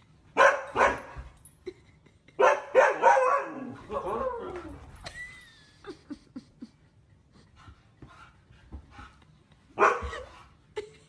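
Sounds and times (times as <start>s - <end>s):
dog barking: 0.4s - 1.1s, 2.4s - 4.0s, 9.8s - 10.2s.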